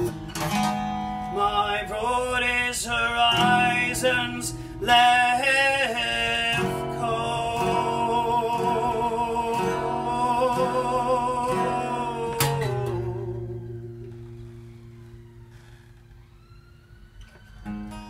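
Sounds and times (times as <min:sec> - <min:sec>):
strummed acoustic guitar: 0:00.0 - 0:15.4
man singing held note: 0:01.4 - 0:13.7.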